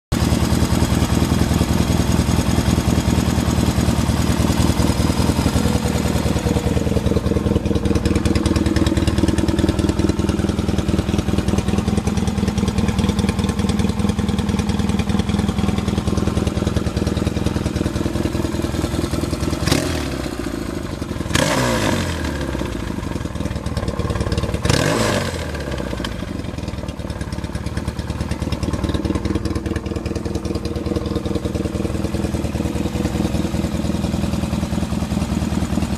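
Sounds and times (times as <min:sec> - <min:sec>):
motorcycle engine idling: 0:00.1 - 0:35.9
engine revving: 0:19.6 - 0:20.6, 0:21.3 - 0:22.8, 0:24.6 - 0:26.2.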